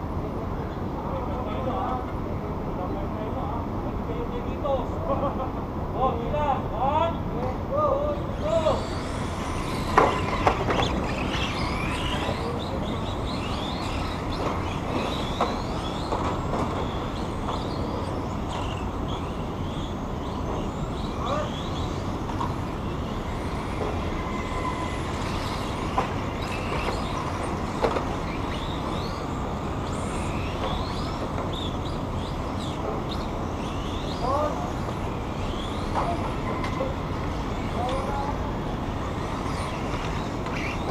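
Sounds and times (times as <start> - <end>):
steady background rush: 0.0 - 40.9
model car motors whining: 6.7 - 40.9.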